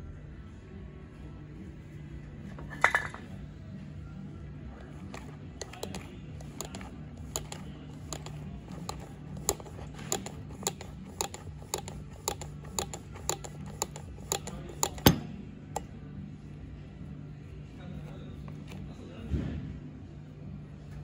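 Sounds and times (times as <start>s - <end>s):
steady low hum: 0.0s - 21.0s
sharp metallic clicks: 5.1s - 15.2s.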